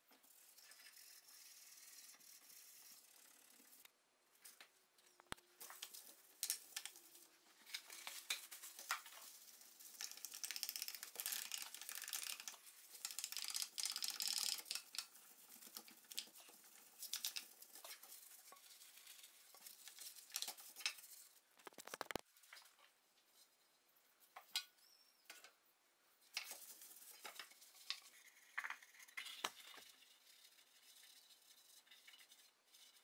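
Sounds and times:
small clicks and knocks: 0:09.9 - 0:18.7, 0:19.8 - 0:22.9.

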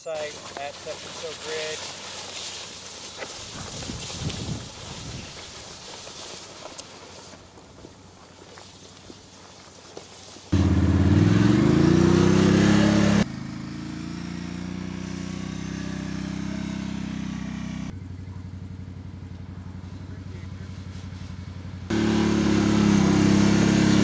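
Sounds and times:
quad engine revving and idling: 0:10.6 - 0:20.7, 0:21.7 - 0:24.0.

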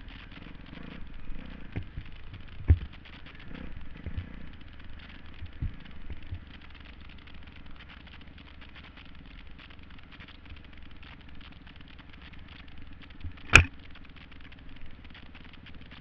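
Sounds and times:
dirt bike engine running: 0:00.0 - 0:16.0
sharp knock: 0:13.5 - 0:13.7.

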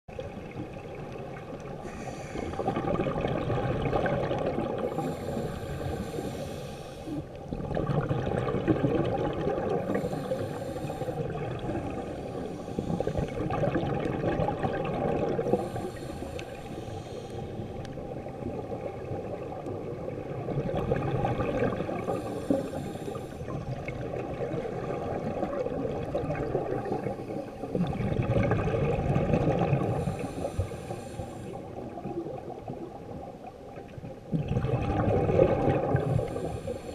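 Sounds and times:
exhaled bubbles gurgling: 0:00.1 - 0:36.9
regulator inhale hiss: 0:01.8 - 0:02.7, 0:04.8 - 0:07.4, 0:09.8 - 0:13.5, 0:15.4 - 0:17.9, 0:22.0 - 0:23.5, 0:29.9 - 0:31.7, 0:36.0 - 0:36.9.

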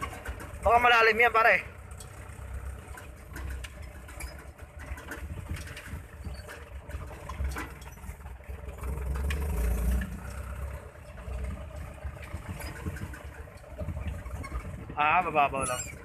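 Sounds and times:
clicks and rattles: 0:00.0 - 0:01.2, 0:01.8 - 0:15.0
truck engine running: 0:00.0 - 0:16.0.

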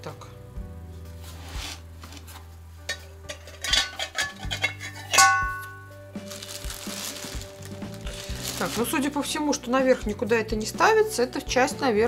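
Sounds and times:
background music: 0:00.0 - 0:12.0
steel parts clinking: 0:02.9 - 0:05.8.

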